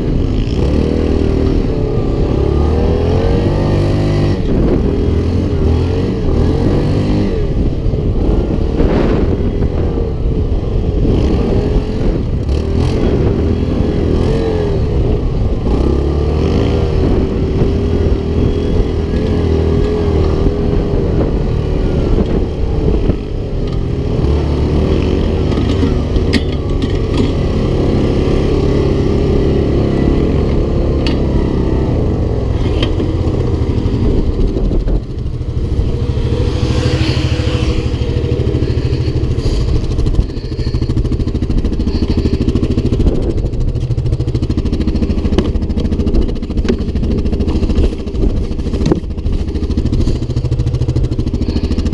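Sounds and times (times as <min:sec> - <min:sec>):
atv engine revving: 0:00.0 - 0:51.9
knocks and rattles over bumps: 0:19.0 - 0:51.9.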